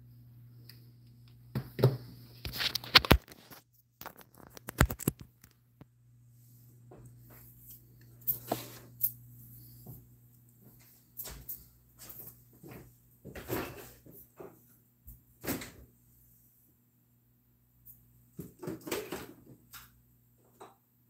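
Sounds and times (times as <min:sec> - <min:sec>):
steady low hum: 0:05.6 - 0:18.4.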